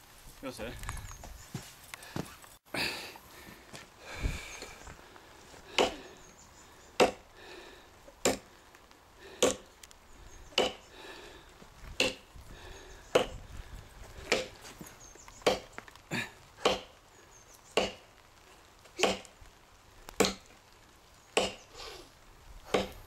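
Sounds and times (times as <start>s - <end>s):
tomahawk chopping into log: 7.0s - 7.2s, 8.2s - 8.5s, 9.4s - 9.7s, 10.6s - 10.8s, 12.0s - 12.2s, 14.3s - 14.5s, 16.6s - 16.9s, 17.8s - 18.0s, 19.0s - 19.3s, 20.2s - 20.4s, 21.4s - 21.6s, 22.7s - 23.0s.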